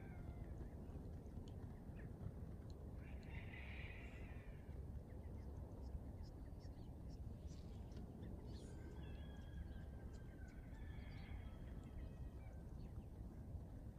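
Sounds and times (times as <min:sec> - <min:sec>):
small birds chirping: 0:04.3 - 0:13.4.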